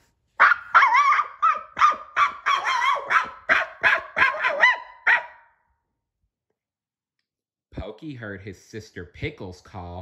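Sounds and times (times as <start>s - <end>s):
puppy yapping: 0.4s - 5.5s.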